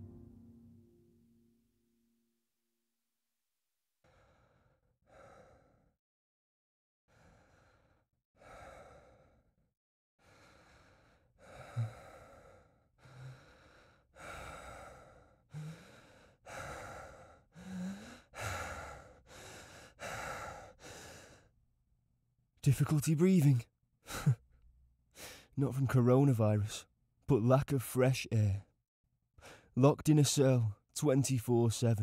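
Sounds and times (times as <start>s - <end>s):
person breathing heavily: 4.0s - 6.0s, 7.1s - 21.6s, 25.1s - 25.6s, 29.4s - 29.8s.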